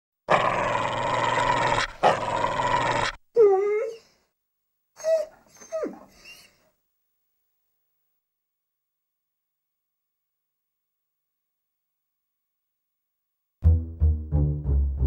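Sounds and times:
cartoon dog growling: 0.3 - 3.2
dog whimpering yips: 3.4 - 4.1, 5.0 - 6.6.

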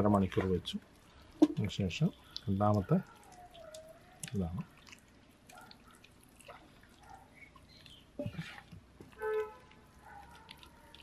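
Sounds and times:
wet squelching of hands: 0.0 - 11.0.

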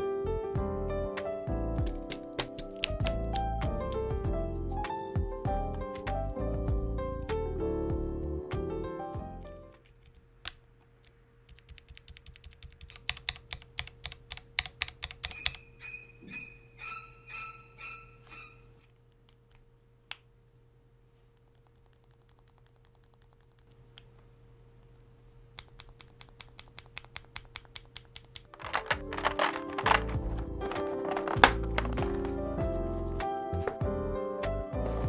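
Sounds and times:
clicky keyboard keystrokes: 1.8 - 4.0, 11.5 - 15.6, 25.6 - 32.3.

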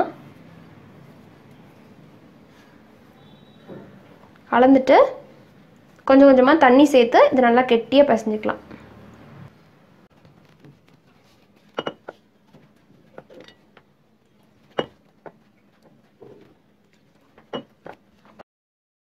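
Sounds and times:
clinks against glass bowl: 14.8 - 15.0.

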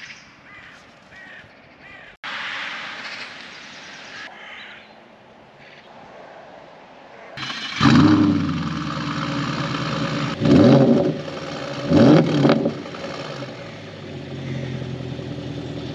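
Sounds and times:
car engine starting and revving: 7.4 - 15.9.

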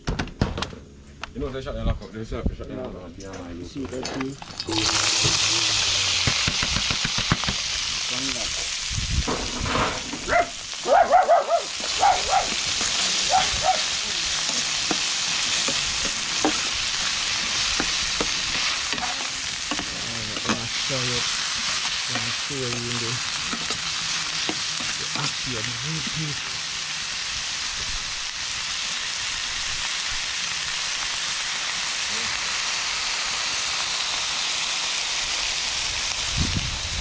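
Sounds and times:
food sizzling in hot oil: 3.8 - 37.0
metal tongs scraping a pan: 11.8 - 26.2.

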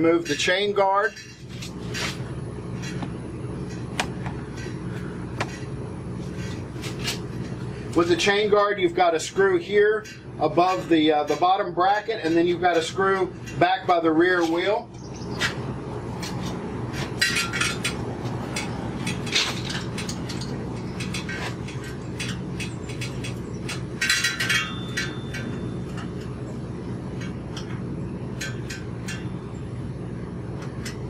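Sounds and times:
steady low hum: 0.0 - 31.0
small metallic clinks and rattles: 17.2 - 26.4.

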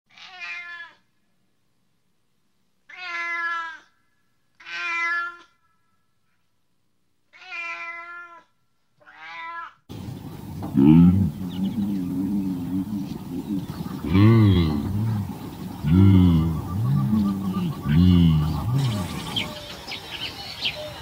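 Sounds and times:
cat meowing: 0.1 - 1.0, 2.9 - 3.9, 4.6 - 5.6, 7.3 - 9.8.

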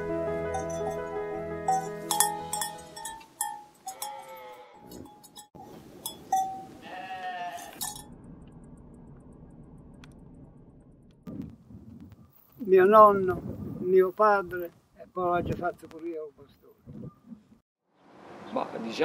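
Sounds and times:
sheep bleating: 3.9 - 4.9, 6.8 - 7.8.

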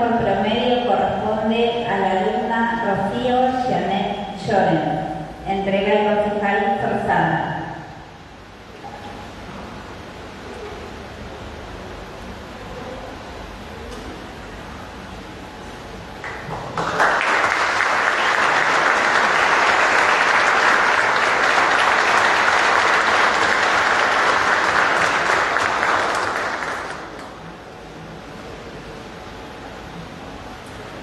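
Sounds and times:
audience applauding: 16.2 - 27.4.

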